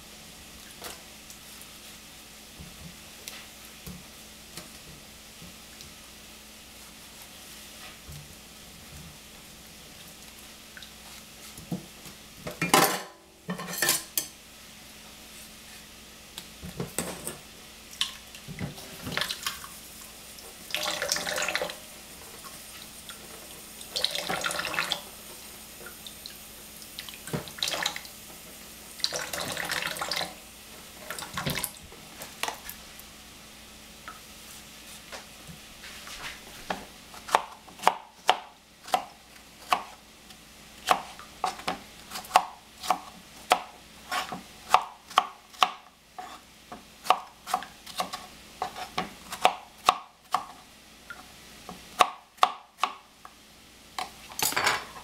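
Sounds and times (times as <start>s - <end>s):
kitchen clatter: 12.5s - 14.3s, 16.8s - 17.4s, 54.3s - 55.0s
running water from sink: 18.6s - 31.9s.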